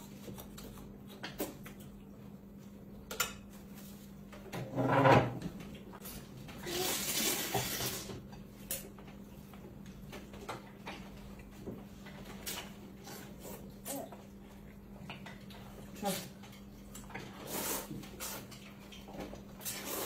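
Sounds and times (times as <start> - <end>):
slurping noodles: 19.6 - 20.0.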